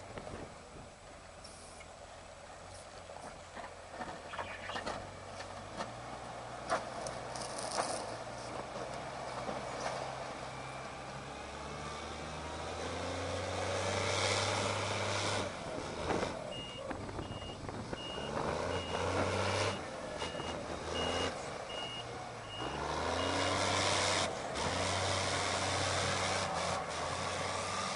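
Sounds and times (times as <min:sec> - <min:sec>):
diesel engine running: 0:00.0 - 0:27.9
reversing alarm beeps: 0:16.5 - 0:23.5.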